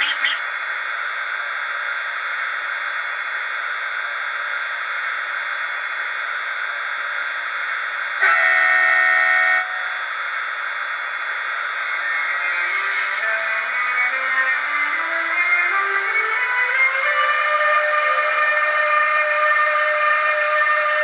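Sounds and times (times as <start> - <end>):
steady electronic hiss: 0.0 - 15.5
train horn blast: 8.2 - 10.1.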